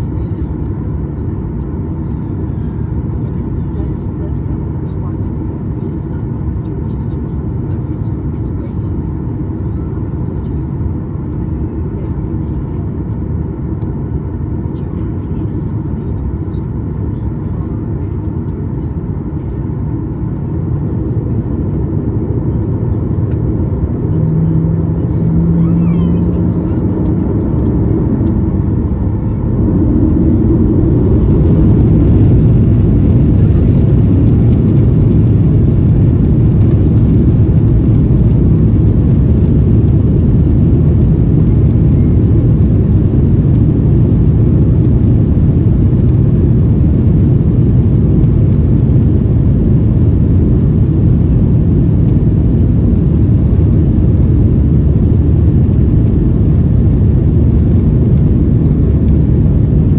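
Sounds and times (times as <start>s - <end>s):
jet engines spooling up: 20.8s - 59.7s.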